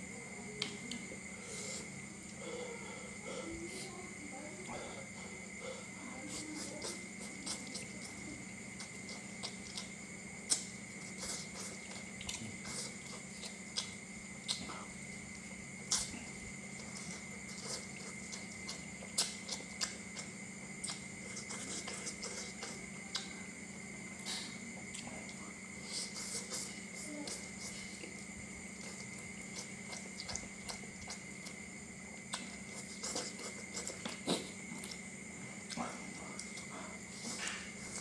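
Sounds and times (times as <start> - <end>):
person slurping and chewing noodles: 5.5 - 15.2, 15.8 - 23.2, 25.8 - 31.6, 32.2 - 35.0.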